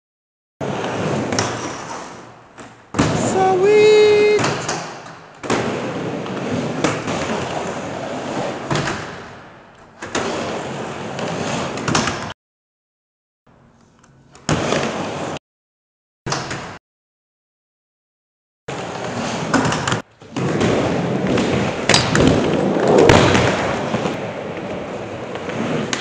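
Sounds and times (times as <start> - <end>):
skateboard wheels rolling: 0.6 - 12.3, 14.4 - 15.4, 18.7 - 26.0
skateboard clacks and slams: 0.9 - 2.2, 8.2 - 9.4, 19.4 - 26.0.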